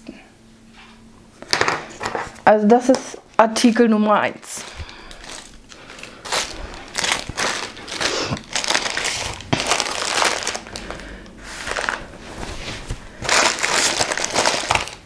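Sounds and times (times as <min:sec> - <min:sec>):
packaging crinkling: 0:04.6 - 0:15.0.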